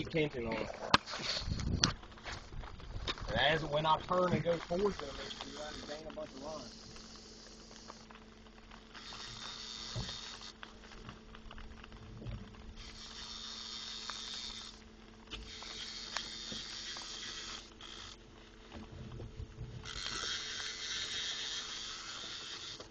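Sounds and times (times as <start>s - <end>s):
boat motor humming: 0.0s - 22.9s
fishing reel cranking: 4.2s - 8.0s, 8.9s - 10.6s, 12.8s - 18.2s, 19.8s - 22.9s.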